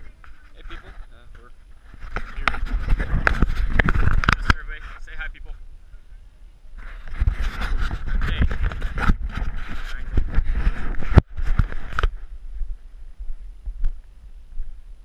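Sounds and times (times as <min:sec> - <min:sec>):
wind rumble on microphone: 0:00.0 - 0:15.0
camera handling rustle: 0:01.9 - 0:04.7, 0:06.8 - 0:12.2.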